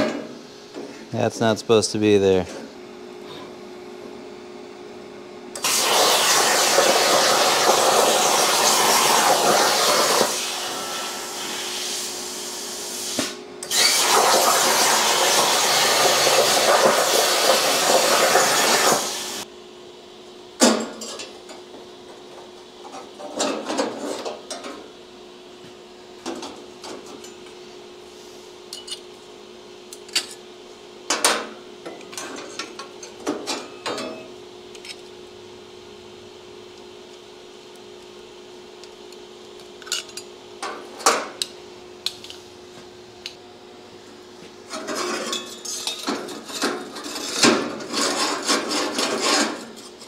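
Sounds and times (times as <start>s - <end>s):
plasma cutter hissing: 5.6s - 19.4s.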